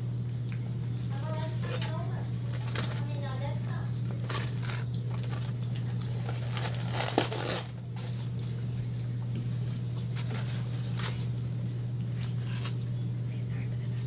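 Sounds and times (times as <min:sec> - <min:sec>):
steady low hum: 0:00.0 - 0:14.0
chewing: 0:00.3 - 0:03.2, 0:03.9 - 0:07.1
fingers rustling in foam container: 0:01.1 - 0:08.4, 0:09.5 - 0:11.4, 0:12.2 - 0:12.8.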